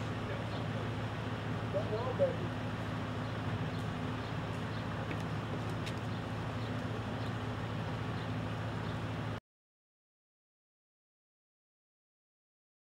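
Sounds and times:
low mechanical hum: 0:00.0 - 0:09.4
outdoor background noise: 0:00.0 - 0:09.4.

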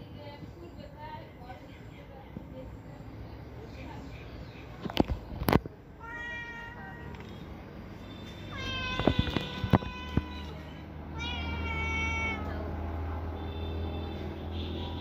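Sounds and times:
cat meowing: 0:06.0 - 0:07.4, 0:08.4 - 0:12.8.

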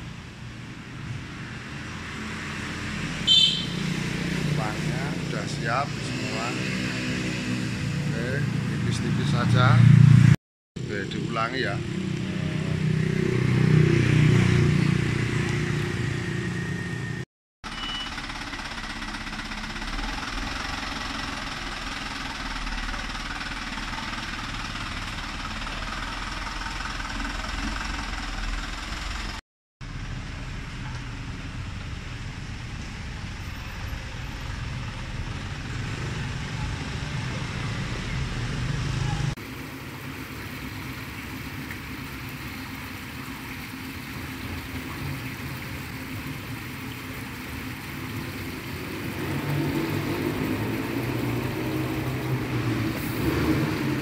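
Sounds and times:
road noise: 0:00.0 - 0:54.0
truck engine running: 0:14.8 - 0:38.7.

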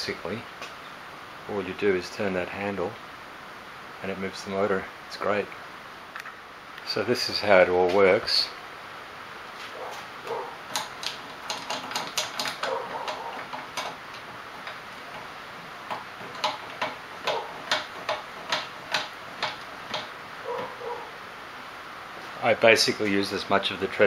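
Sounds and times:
tensioning handle clicking: 0:10.7 - 0:20.8.

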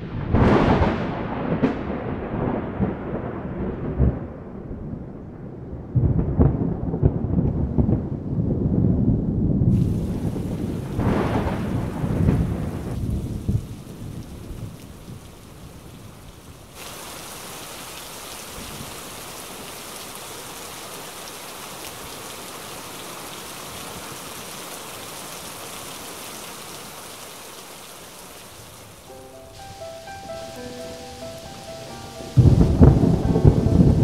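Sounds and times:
heavy rain falling: 0:00.0 - 0:04.8, 0:09.7 - 0:34.0
thunder rumbling: 0:00.0 - 0:15.8, 0:28.9 - 0:34.0.

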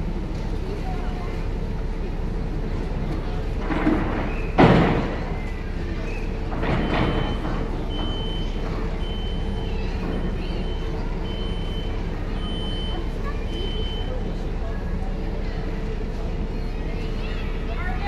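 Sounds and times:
ferry engine humming: 0:00.0 - 0:18.0
high electronic warning beeps: 0:06.8 - 0:14.2.

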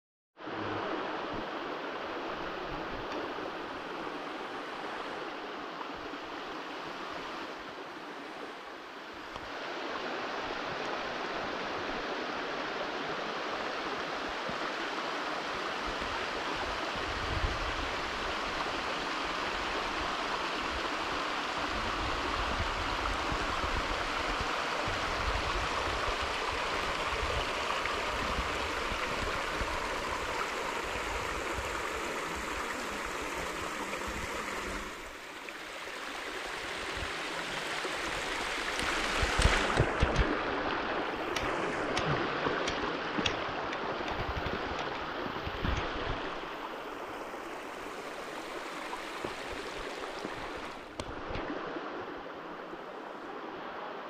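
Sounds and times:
stream rushing over rock: 0:00.4 - 0:54.0.

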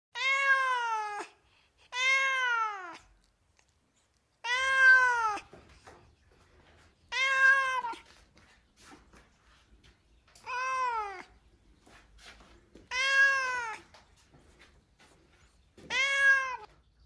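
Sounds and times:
cat meowing: 0:00.1 - 0:03.3, 0:04.4 - 0:05.6, 0:07.1 - 0:08.1, 0:10.4 - 0:11.4, 0:12.8 - 0:13.9, 0:15.8 - 0:16.8.

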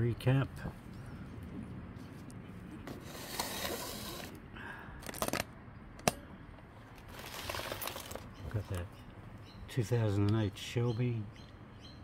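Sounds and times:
camera handling rustle: 0:06.9 - 0:08.3.

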